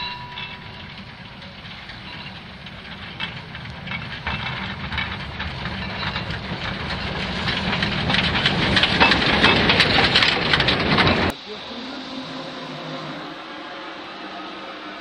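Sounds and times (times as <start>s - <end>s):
wheels crunching through snow: 0.0s - 11.8s
steam hissing: 11.2s - 15.0s.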